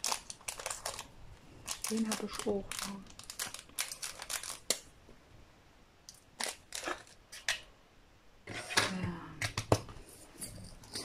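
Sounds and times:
plastic bags crinkling: 0.0 - 4.9, 6.2 - 7.5.

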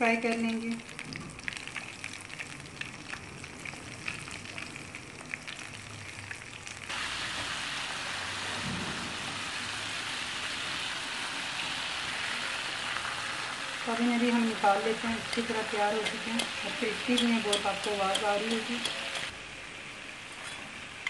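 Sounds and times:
chicken deep-frying in oil: 0.0 - 21.0.

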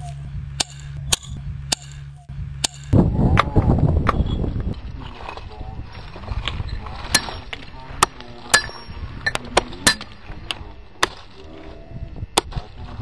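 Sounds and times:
hammer striking stone: 8.5 - 10.1.

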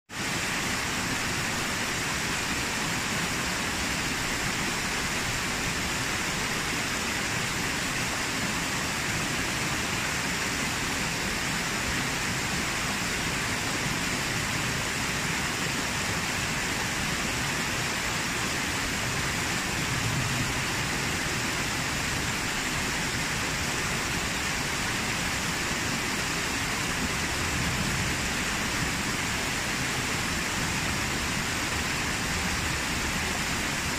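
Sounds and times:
waterfall cascading over rocks: 0.1 - 33.9.

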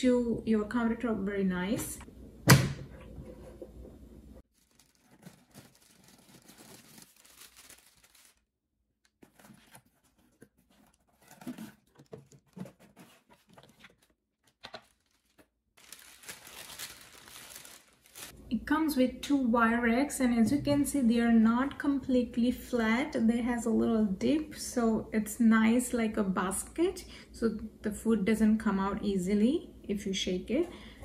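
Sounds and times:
cardboard and packing rustling: 4.4 - 8.4, 9.1 - 18.4.

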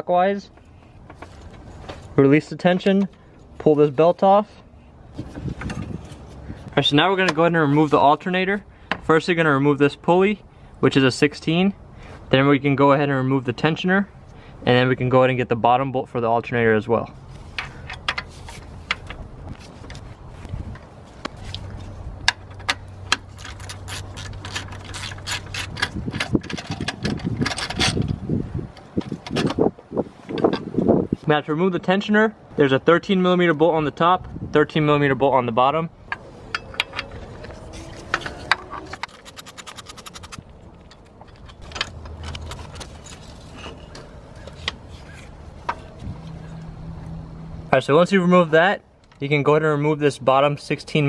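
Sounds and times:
metallic clicks: 38.0 - 43.3
bolt rattling: 38.0 - 44.0.

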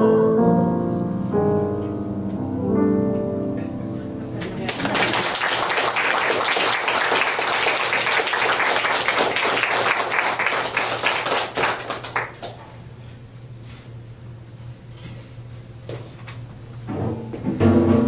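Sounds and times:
small audience applauding: 4.4 - 12.6.

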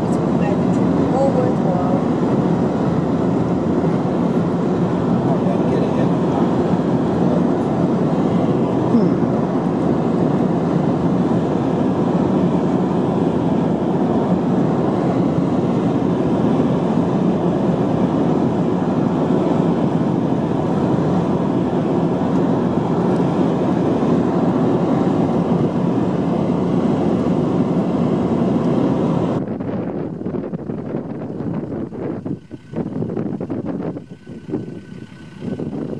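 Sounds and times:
freight train running: 0.0 - 28.5
car road and wind noise: 0.0 - 35.9.

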